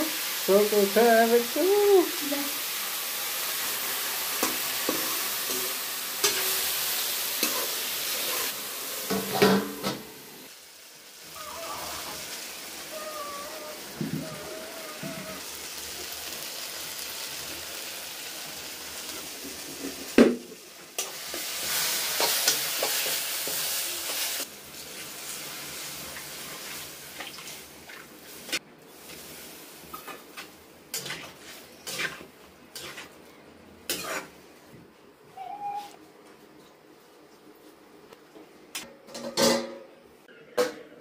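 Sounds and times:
food sizzling in a pan: 0.0s - 34.7s
metal spatula scraping a pan: 29.9s - 33.2s, 33.9s - 34.4s.

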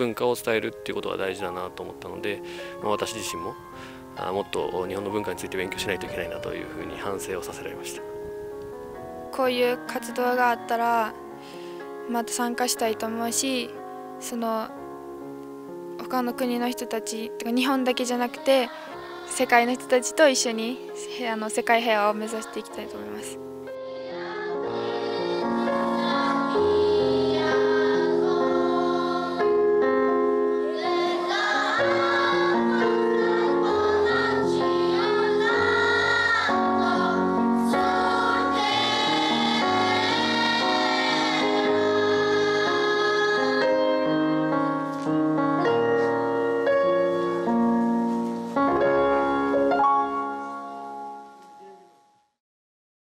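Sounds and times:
choir singing slow chords: 17.9s - 20.0s, 22.1s - 47.7s.

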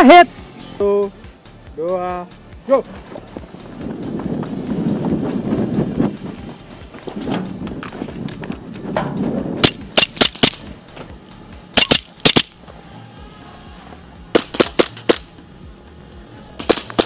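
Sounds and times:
airsoft guns firing: 9.6s - 10.8s, 11.7s - 12.6s, 14.3s - 15.3s, 16.6s - 17.0s.

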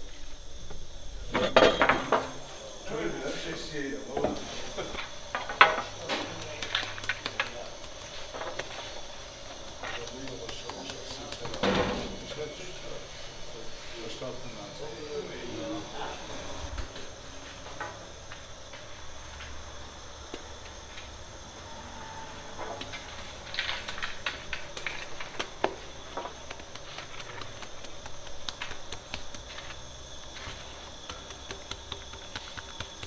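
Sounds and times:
bakery hum and hiss: 0.0s - 33.0s
wet hands slapping dough: 6.1s - 11.8s, 23.8s - 33.0s.

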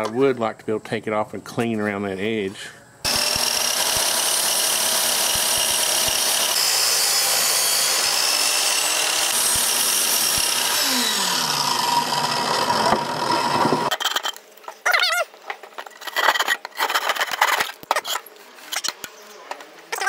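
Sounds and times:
miter saw cutting wood: 3.1s - 13.9s.

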